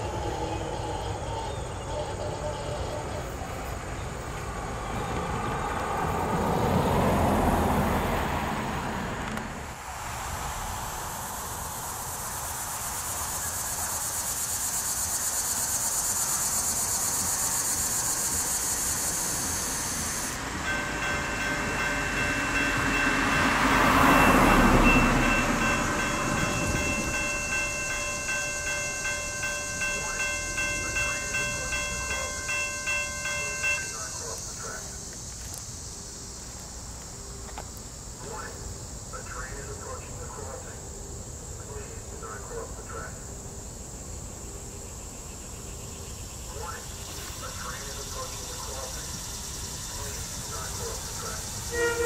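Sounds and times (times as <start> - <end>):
vehicles passing: 0.0 - 52.0
steady high hiss: 9.6 - 52.0
railroad crossing bell: 16.0 - 35.0, 46.5 - 52.0.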